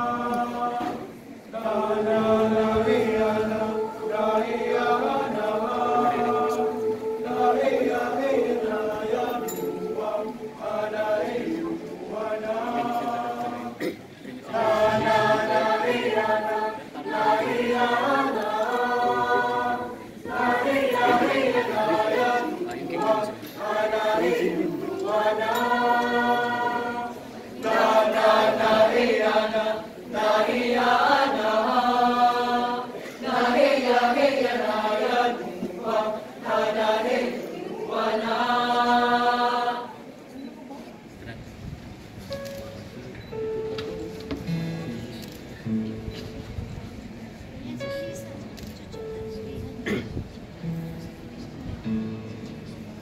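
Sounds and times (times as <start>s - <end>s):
mixed choir singing a cappella: 0.0s - 40.5s.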